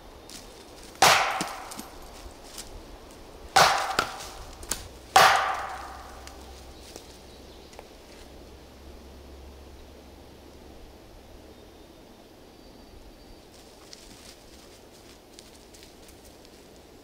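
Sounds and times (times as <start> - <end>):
branch knocking on tree trunk: 0.3 - 2.2, 3.6 - 7.0.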